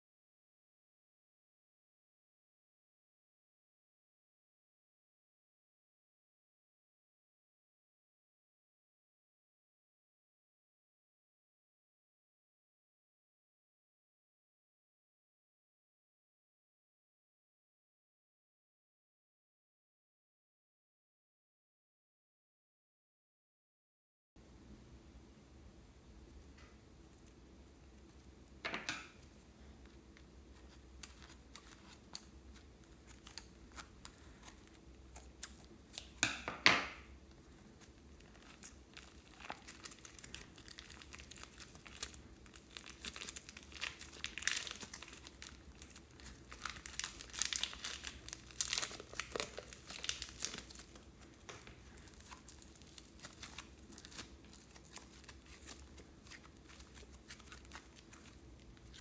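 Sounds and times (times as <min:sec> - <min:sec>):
slime squishing: 0:27.0 - 0:36.2, 0:37.2 - 0:59.0
plastic bag crinkling: 0:37.4 - 0:59.0.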